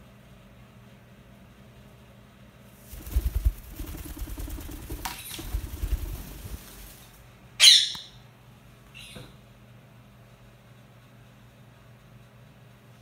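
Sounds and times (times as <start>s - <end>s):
parakeet wings flapping: 2.8s - 7.3s
parakeet squawk: 7.6s - 8.2s.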